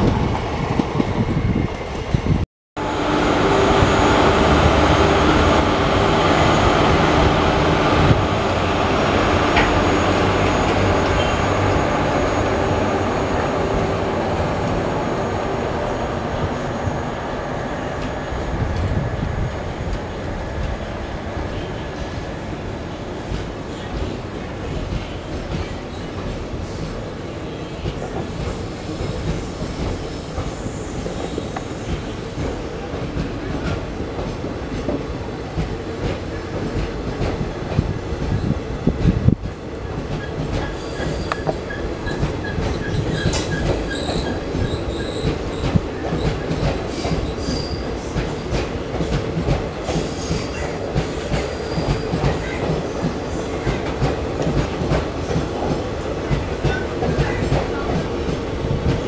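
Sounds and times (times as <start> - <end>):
train wheels rumbling on rails: 0.0 - 59.0
high-pitched wheel squeals: 40.7 - 45.3.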